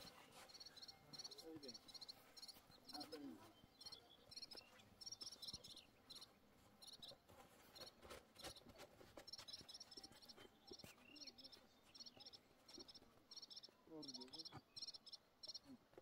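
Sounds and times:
cricket chirping: 0.5 - 3.0, 12.0 - 15.7.

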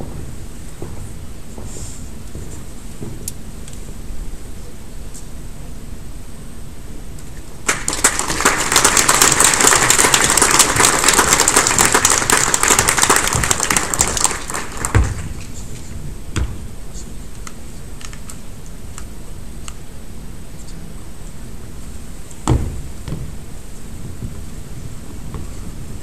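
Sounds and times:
audience applauding: 7.6 - 15.4
dull thumps: 22.4 - 23.4.

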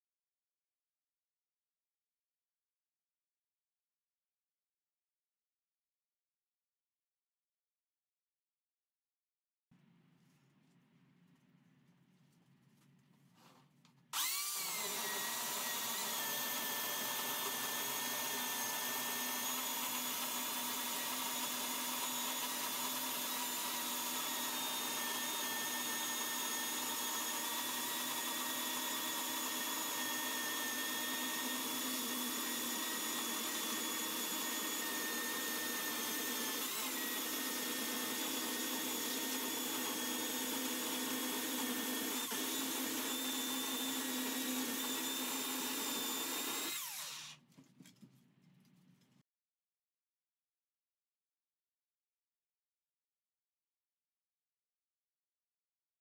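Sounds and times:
electric chainsaw cutting log: 14.1 - 47.4.

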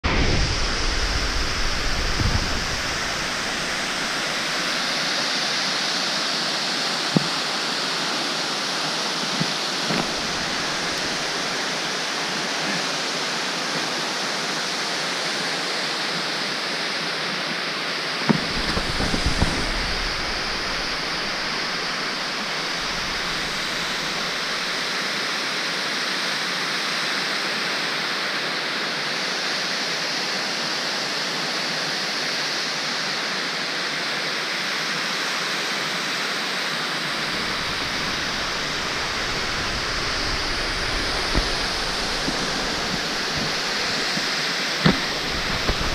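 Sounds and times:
low rumble: 0.0 - 4.8, 37.2 - 44.3
waterfall rushing: 0.0 - 25.9, 35.4 - 45.9.

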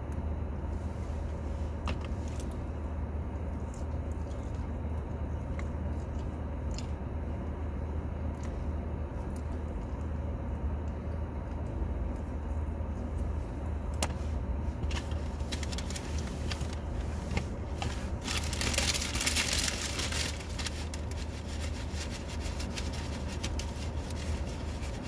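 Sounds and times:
crackles and scraping rustles: 9.3 - 25.0.

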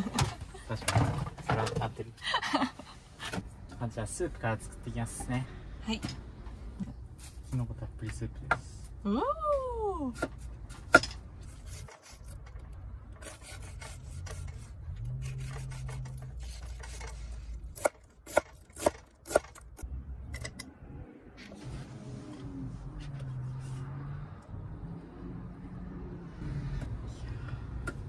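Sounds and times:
knife scraping on cutting board: 13.2 - 17.3.

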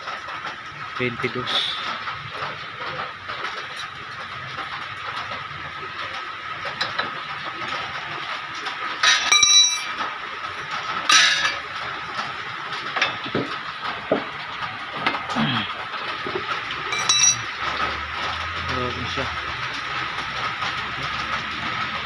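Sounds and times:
metal hand tools clinking: 9.0 - 10.0, 11.1 - 11.6, 16.9 - 17.6
ringing metallic clatter: 9.0 - 10.1, 11.1 - 11.6, 16.9 - 17.9.

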